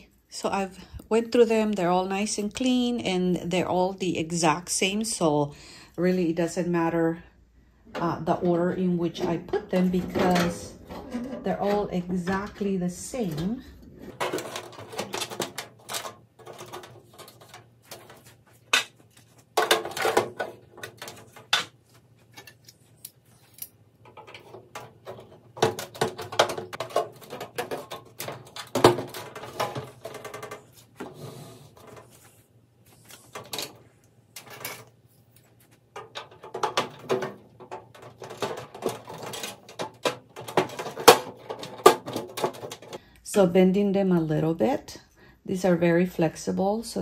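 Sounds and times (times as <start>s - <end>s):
plastic rattling against metal: 9.1s - 22.6s, 24.0s - 32.2s, 35.8s - 43.0s.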